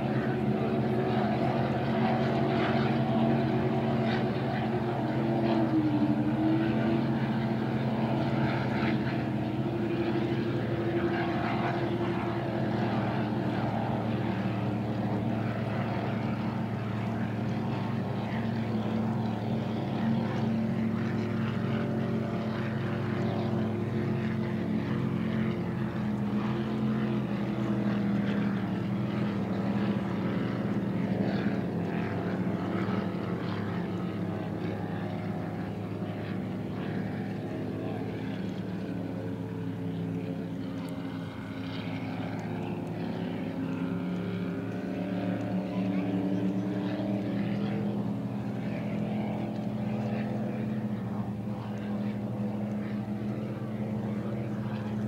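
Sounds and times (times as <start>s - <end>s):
engines droning: 0.0s - 55.0s.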